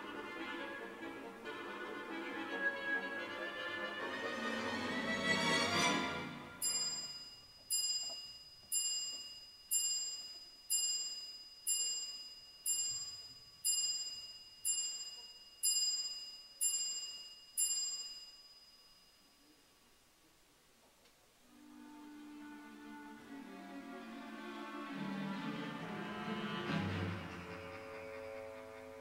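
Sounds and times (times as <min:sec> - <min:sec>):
clock chime striking: 0:06.6 - 0:18.3.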